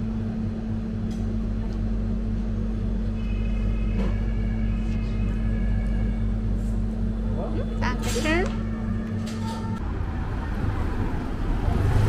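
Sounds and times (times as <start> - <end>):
display case machine hum: 0.0 - 10.7.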